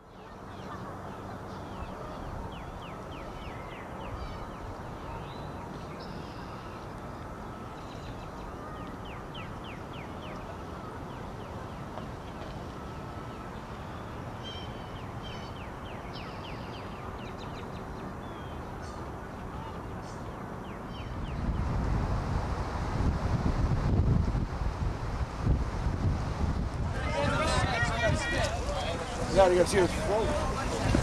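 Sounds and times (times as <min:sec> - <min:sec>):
birds chirping: 0:00.0 - 0:21.8, 0:26.9 - 0:31.0.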